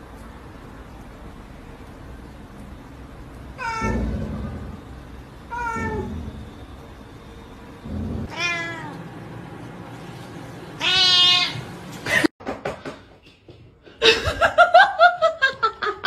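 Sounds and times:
cat meowing: 0:03.6 - 0:04.6, 0:05.5 - 0:06.3, 0:08.2 - 0:09.0, 0:10.8 - 0:11.7
person laughing: 0:14.0 - 0:16.0.

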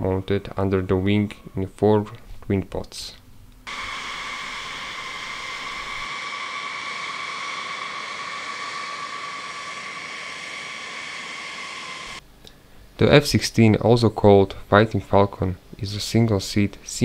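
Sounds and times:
jet engines whining: 0:03.7 - 0:12.2.

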